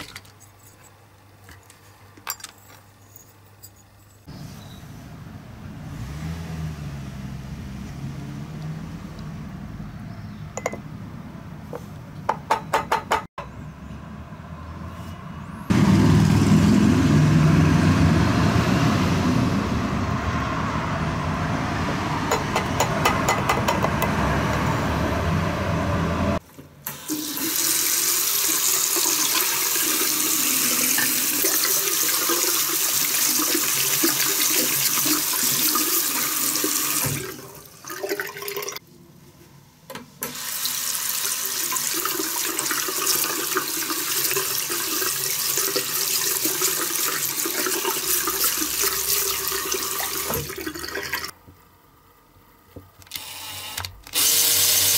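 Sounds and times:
tap water running into sink: 27.1s - 38.8s, 40.2s - 51.3s.

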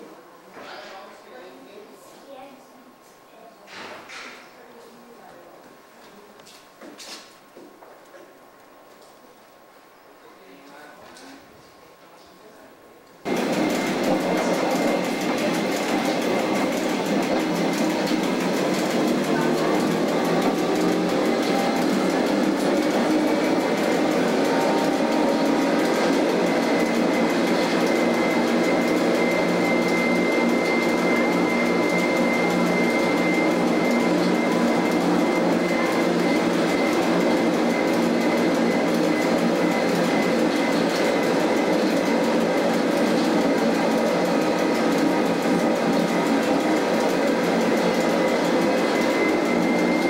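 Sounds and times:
thin high whine: 13.3s - 41.8s
railcar motors humming: 13.3s - 42.6s.

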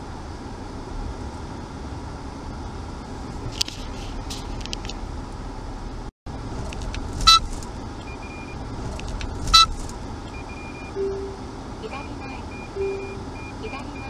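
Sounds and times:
car engine and road noise: 0.0s - 14.0s
loud sharp sounds with ringing tone: 12.4s - 13.6s.

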